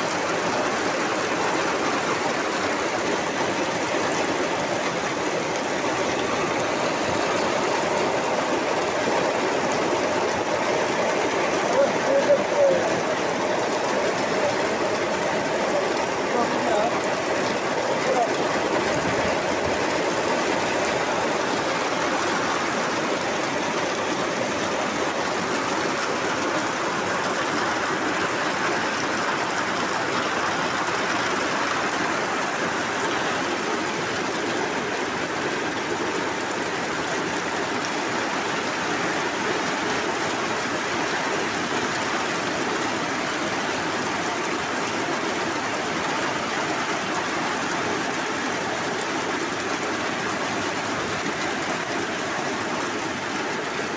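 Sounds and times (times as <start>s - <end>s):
heavy rain on metal roof: 0.0s - 53.9s.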